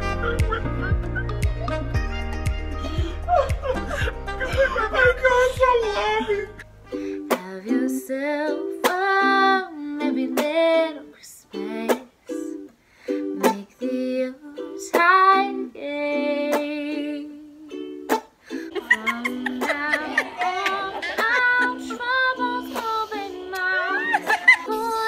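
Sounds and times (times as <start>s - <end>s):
ukulele plucked and strummed: 0.0s - 25.0s
woman singing: 7.2s - 18.0s, 18.7s - 25.0s.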